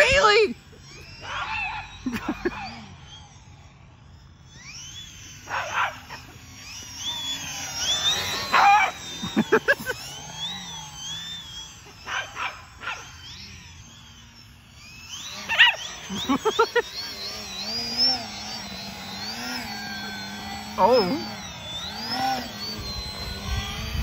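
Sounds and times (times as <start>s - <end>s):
model plane electric motor whining: 0.0s - 24.0s
dog barking: 12.1s - 13.0s.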